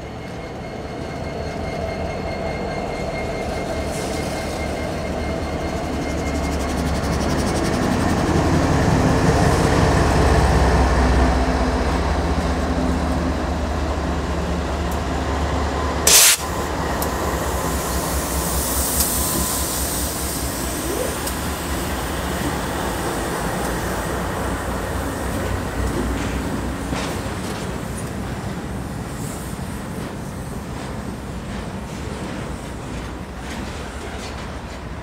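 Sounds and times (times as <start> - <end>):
diesel locomotive engine rumble: 0.0 - 35.0
train wheels on rails: 0.0 - 35.0
loud hiss burst: 16.1 - 16.7.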